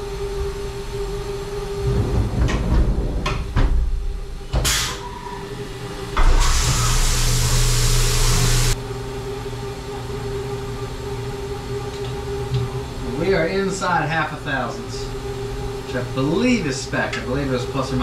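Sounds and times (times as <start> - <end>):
machine hum: 0.0 - 18.0
hiss: 4.6 - 5.1, 6.2 - 8.8.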